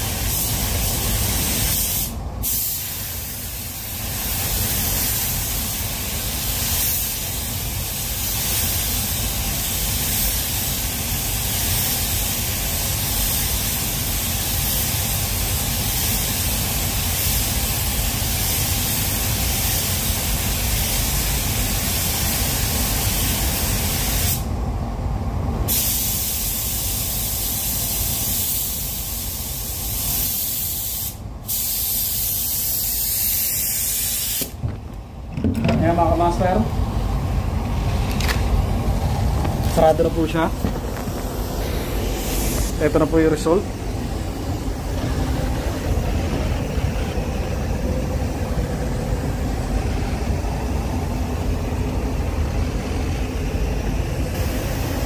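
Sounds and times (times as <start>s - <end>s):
paint spray gun hissing: 0.0s - 21.2s, 25.7s - 34.6s, 39.7s - 46.1s, 54.3s - 55.0s.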